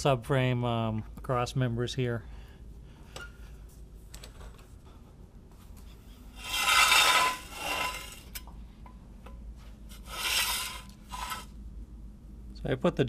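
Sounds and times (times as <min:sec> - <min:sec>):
floor jack scraping on concrete: 0:06.4 - 0:08.4, 0:09.9 - 0:11.5.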